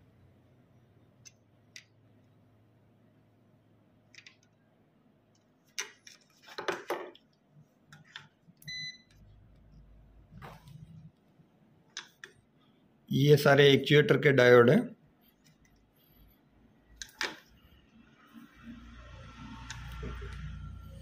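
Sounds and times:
multimeter continuity beep: 0:08.6 - 0:09.4.

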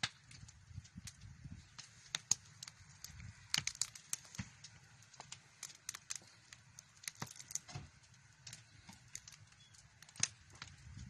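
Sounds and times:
wood fire crackling and popping: 0:00.0 - 0:11.0.

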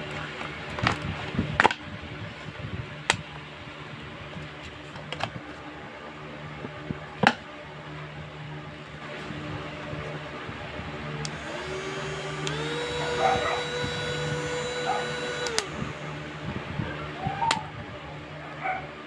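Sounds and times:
box and fan handled clicks and knocks: 0:00.4 - 0:01.8, 0:04.9 - 0:05.4.

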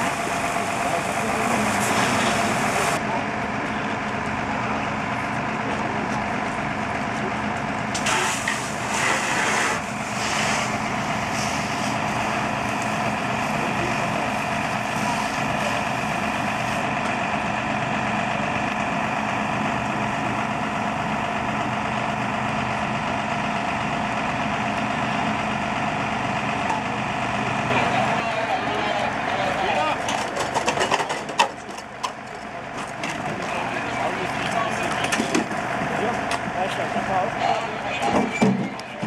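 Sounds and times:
fire engine running: 0:00.0 - 0:39.0.

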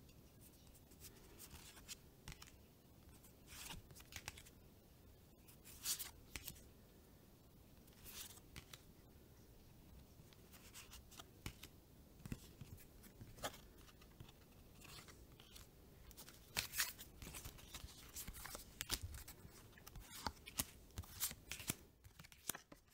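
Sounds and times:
trading cards flicking and sliding: 0:01.4 - 0:02.6, 0:03.5 - 0:04.5, 0:05.7 - 0:06.6, 0:08.0 - 0:08.9, 0:10.3 - 0:22.9.

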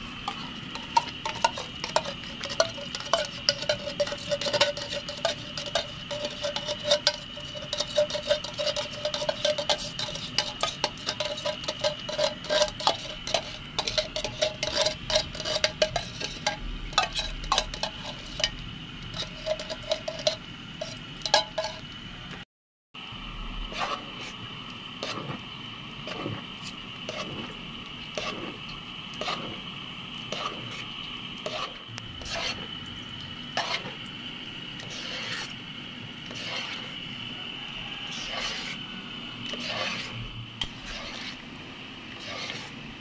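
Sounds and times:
steady high whine: 0:00.0 - 0:22.4, 0:23.0 - 0:43.0
metal spoon scraping tin can: 0:00.3 - 0:21.8, 0:31.4 - 0:32.7, 0:33.6 - 0:34.0, 0:34.8 - 0:35.5, 0:36.3 - 0:37.0, 0:38.0 - 0:38.8, 0:39.5 - 0:41.4, 0:42.2 - 0:42.8.

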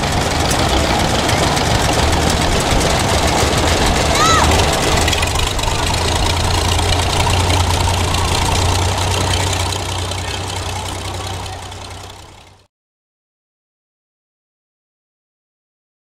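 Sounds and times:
tractor engine idling: 0:00.0 - 0:12.7.

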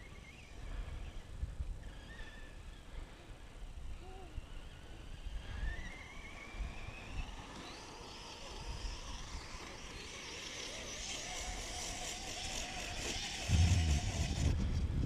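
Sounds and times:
electric motor whining: 0:04.6 - 0:14.8
wind rumbling on microphone: 0:13.4 - 0:15.0.

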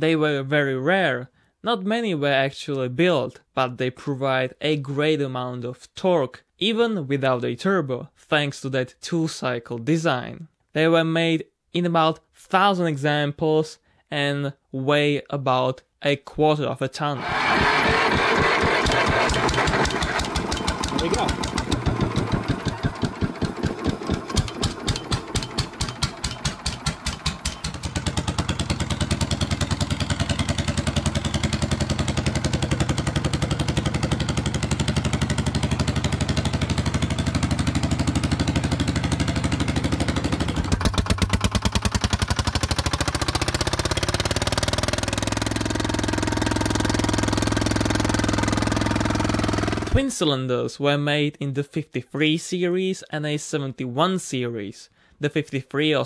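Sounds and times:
diesel engine running: 0:17.2 - 0:50.0.

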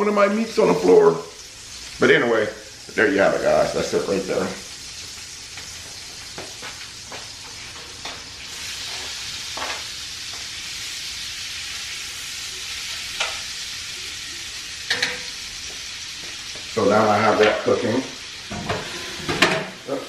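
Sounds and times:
meat sizzling in butter: 0:00.1 - 0:20.0
clinks of plate and utensils: 0:14.9 - 0:15.3.

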